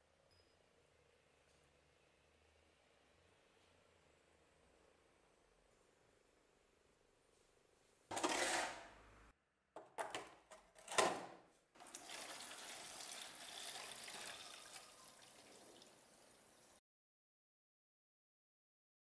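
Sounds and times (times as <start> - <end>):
liquid pouring into plastic bottle: 11.8 - 16.0.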